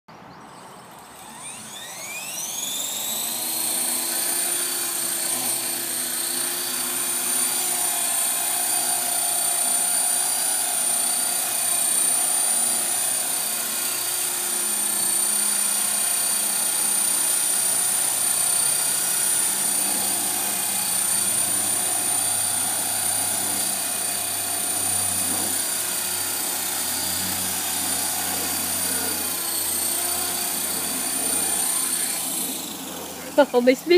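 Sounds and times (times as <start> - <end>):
rc helicopter motor whine: 0.3 - 33.9
helicopter rotor noise: 0.4 - 33.9.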